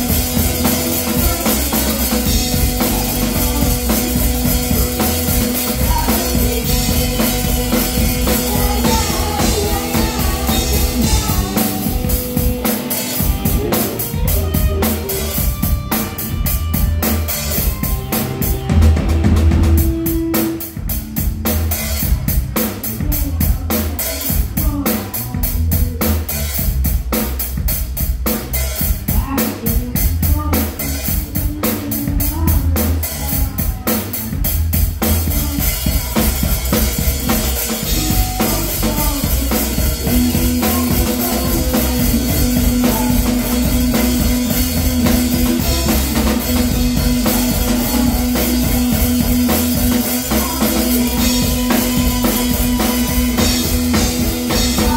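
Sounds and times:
repeating bass line: 0:00.0 - 0:22.4, 0:34.5 - 0:54.9
drum kit playing: 0:00.0 - 0:54.9.

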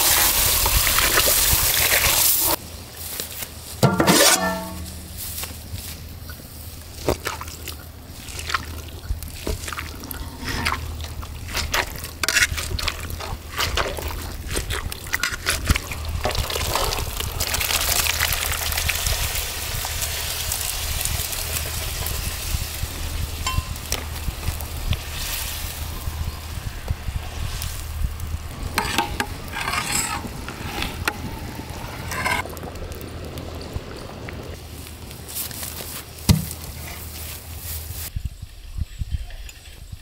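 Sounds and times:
gravy sizzling and bubbling: 0:00.0 - 0:02.6, 0:06.6 - 0:35.1
spoon scraping a pot: 0:03.8 - 0:05.1, 0:11.5 - 0:13.8, 0:28.6 - 0:31.3, 0:32.0 - 0:32.4.

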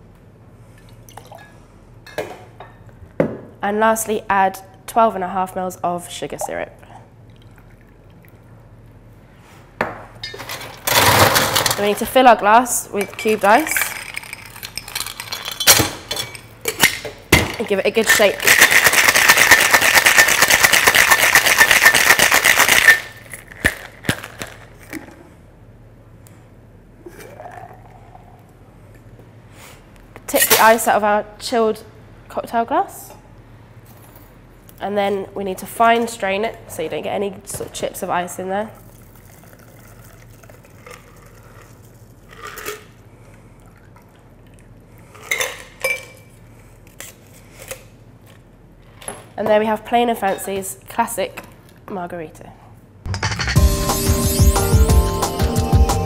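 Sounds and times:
ice cubes rattling in a shaker: 0:13.2 - 0:15.7, 0:18.0 - 0:24.8, 0:38.8 - 0:42.9.

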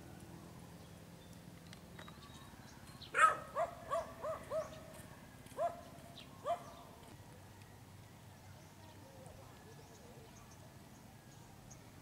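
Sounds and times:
dog barking: 0:03.2 - 0:04.8, 0:05.6 - 0:05.8, 0:06.4 - 0:06.7.

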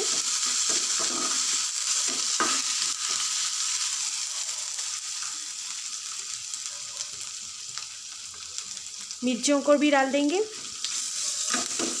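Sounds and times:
spoon scraping a pan: 0:00.0 - 0:03.4, 0:10.8 - 0:12.0
butter sizzling in a frying pan: 0:00.0 - 0:12.0.

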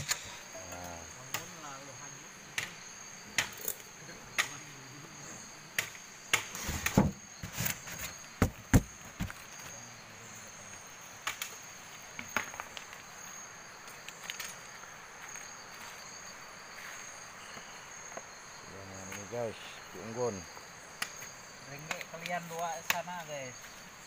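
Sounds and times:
crickets trilling: 0:00.0 - 0:24.0
sharp knocks and clatters: 0:05.8 - 0:09.4.

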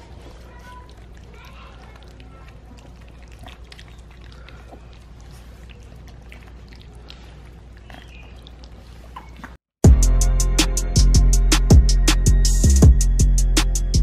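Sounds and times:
puppies lapping from bowl: 0:00.0 - 0:09.6.

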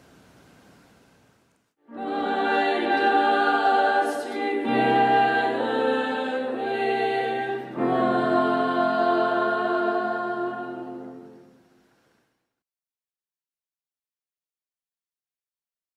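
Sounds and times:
choir singing a hymn: 0:01.8 - 0:11.6.

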